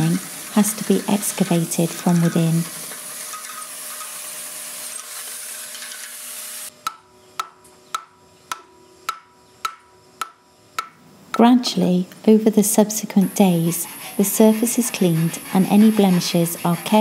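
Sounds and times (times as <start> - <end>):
hammer strikes on metal: 6.8 - 11.5.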